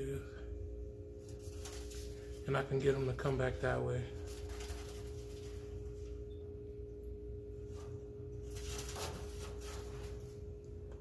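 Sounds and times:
steady two-tone hum: 0:00.0 - 0:11.0
faint brushing noises: 0:07.6 - 0:10.5.

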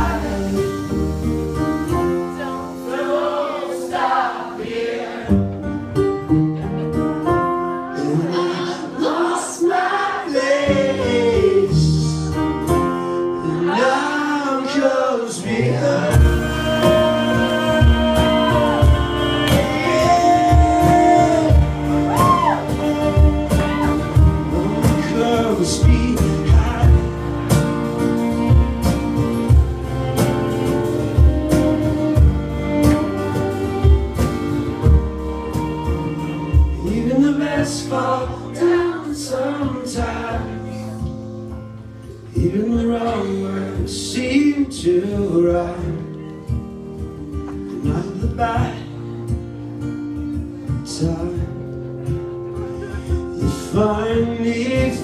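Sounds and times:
man singing: 0:00.0 - 0:01.3, 0:07.8 - 0:27.5, 0:36.2 - 0:41.2, 0:42.2 - 0:46.3, 0:47.7 - 0:49.2, 0:50.6 - 0:51.7, 0:52.5 - 0:55.0
drums: 0:00.0 - 0:03.2, 0:16.0 - 0:39.0, 0:52.1 - 0:55.0
acoustic guitar: 0:00.0 - 0:55.0
cello: 0:15.6 - 0:39.1.

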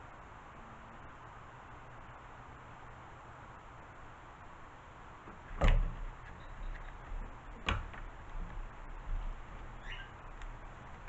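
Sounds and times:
handling knocks: 0:07.0 - 0:09.4.

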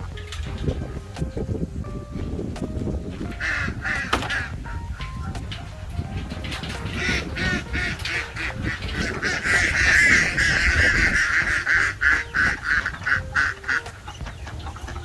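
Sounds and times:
ducks quacking: 0:03.3 - 0:05.2, 0:06.3 - 0:15.0.

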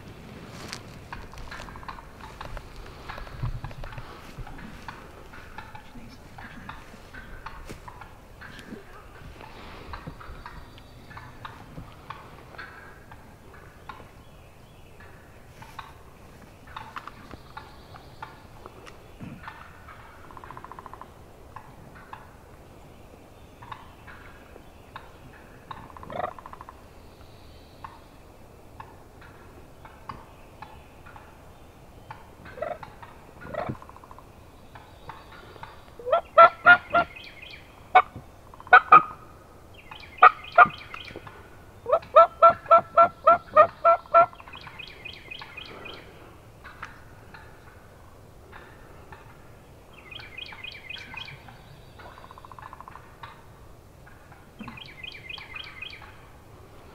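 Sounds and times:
turkey yelps: 0:32.5 - 0:34.0, 0:36.0 - 0:37.1, 0:37.9 - 0:39.2, 0:41.9 - 0:44.4.

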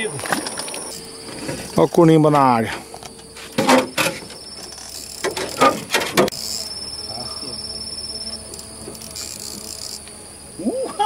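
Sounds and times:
fishing reel whirring and ticking: 0:04.4 - 0:05.6, 0:06.3 - 0:10.1.

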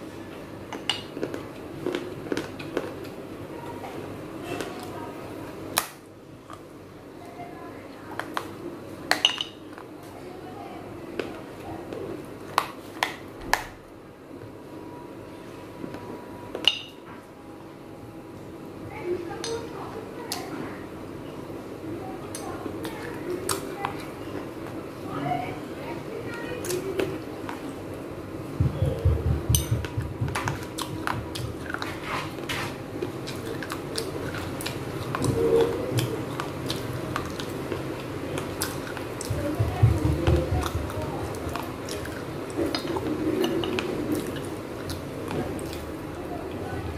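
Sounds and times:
low chewing thumps: 0:28.6 - 0:31.9, 0:33.0 - 0:46.9.

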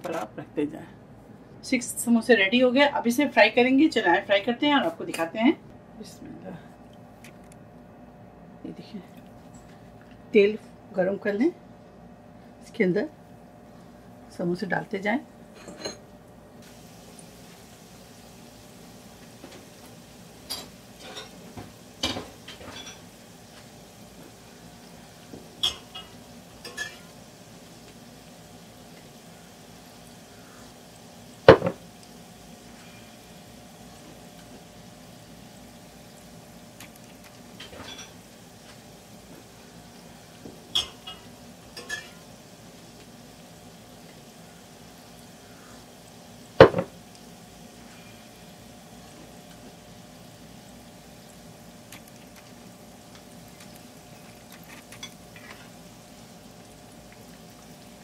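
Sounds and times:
food sizzling in hot oil: 0:16.6 - 0:58.0.

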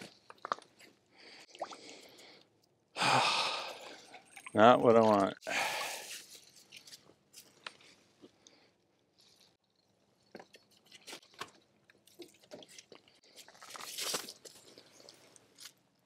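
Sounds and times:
crunching and rustling handling: 0:10.2 - 0:16.0.

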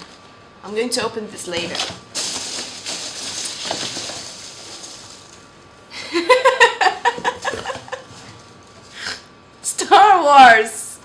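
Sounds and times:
packaging rustling: 0:01.6 - 0:05.6
woman laughing: 0:05.9 - 0:08.2.

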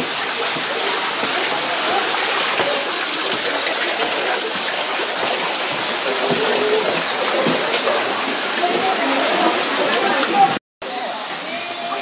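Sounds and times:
stream rushing: 0:00.0 - 0:12.0.

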